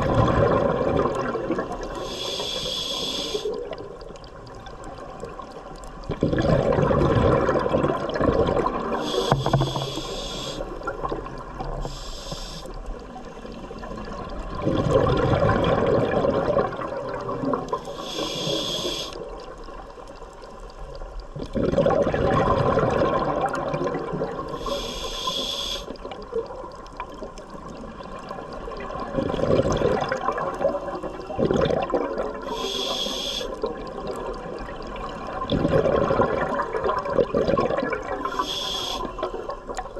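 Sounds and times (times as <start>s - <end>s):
exhaled bubbles rushing: 0.0s - 2.0s, 3.5s - 12.0s, 12.9s - 17.9s, 21.3s - 24.8s, 25.9s - 32.5s, 33.5s - 38.4s
regulator inhalation hiss: 2.0s - 3.6s, 9.0s - 10.7s, 11.8s - 12.8s, 17.8s - 19.2s, 24.5s - 25.9s, 32.4s - 33.6s, 38.3s - 39.2s.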